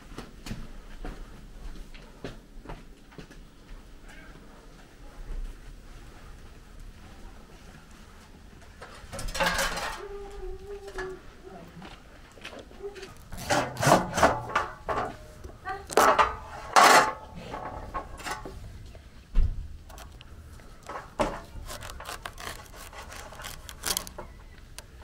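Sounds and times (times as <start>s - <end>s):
knife sawing through pumpkin rind: 21.6s - 24.1s.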